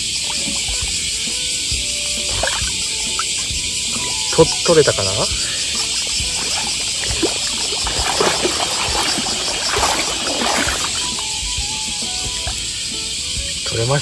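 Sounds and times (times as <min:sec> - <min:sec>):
water splashing from a net: 0:00.0 - 0:12.7
sand and gravel shifting: 0:05.3 - 0:11.4.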